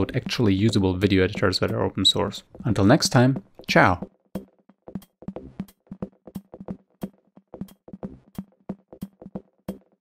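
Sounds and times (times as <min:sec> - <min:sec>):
electronic music with drum-machine beat: 0:02.5 - 0:10.0.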